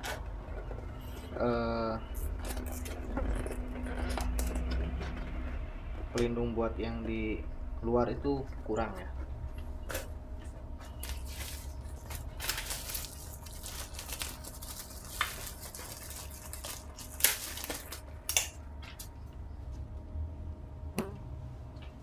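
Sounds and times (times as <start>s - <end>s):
bubble wrap crinkling: 10.8s - 19.2s.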